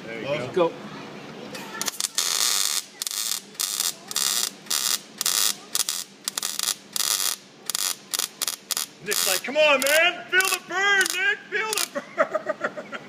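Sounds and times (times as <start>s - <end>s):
welder arc crackling: 1.7s - 12.0s.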